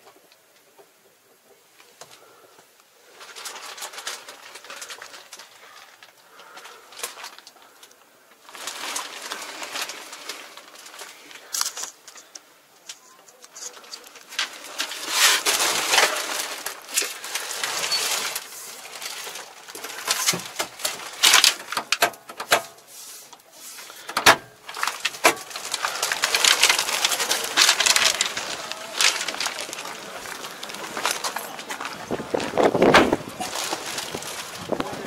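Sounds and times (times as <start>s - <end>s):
hands rustling and handling: 3.1s - 35.0s.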